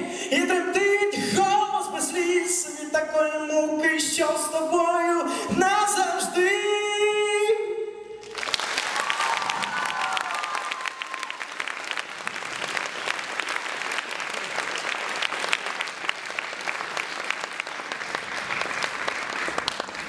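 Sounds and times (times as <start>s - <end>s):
audience applauding: 8.2s - 20.0s.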